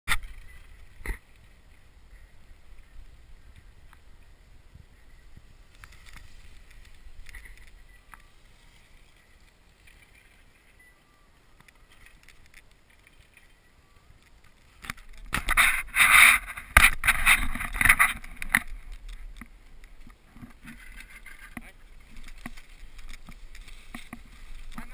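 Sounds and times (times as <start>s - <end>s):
faint rustle: 0.1s - 24.9s
skis scraping on snow: 15.5s - 24.9s.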